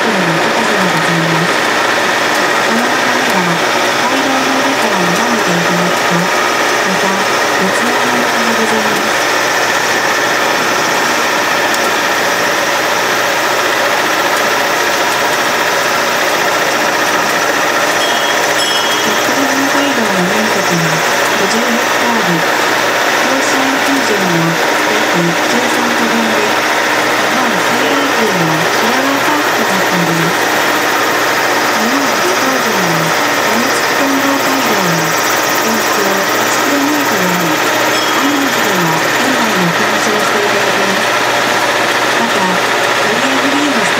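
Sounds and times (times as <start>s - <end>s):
low hum gliding in pitch: 0.0s - 43.9s
train engine and running noise: 0.0s - 43.9s.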